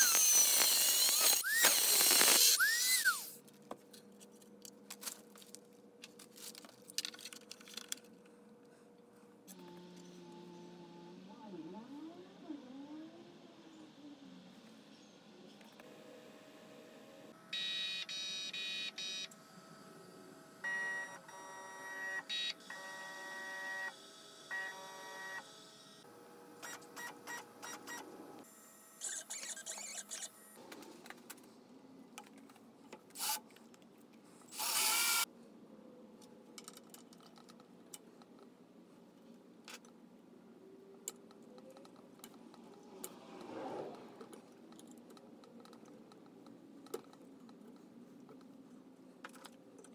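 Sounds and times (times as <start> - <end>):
stepper motor buzzing whine: 0.0 - 3.3.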